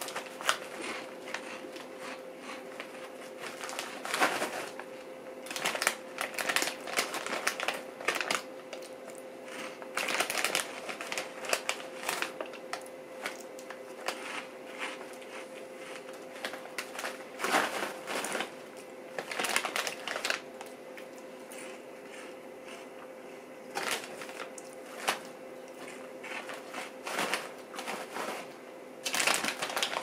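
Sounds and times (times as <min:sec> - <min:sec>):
crunching snack sticks: 0:00.0 - 0:04.8, 0:05.4 - 0:18.6, 0:19.2 - 0:22.9, 0:23.7 - 0:28.4, 0:29.0 - 0:30.0
plastic snack bag crinkling: 0:00.0 - 0:22.8, 0:23.7 - 0:30.0.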